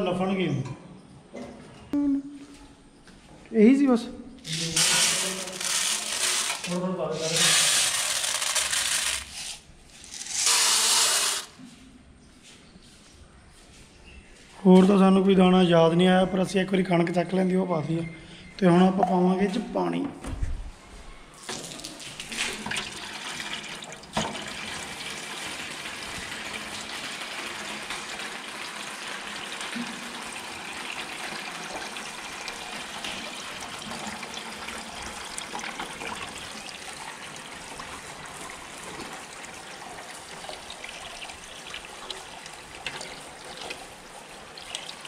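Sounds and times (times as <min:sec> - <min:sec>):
hose water splashing into tin can: 0:04.5 - 0:11.6, 0:21.4 - 0:45.0.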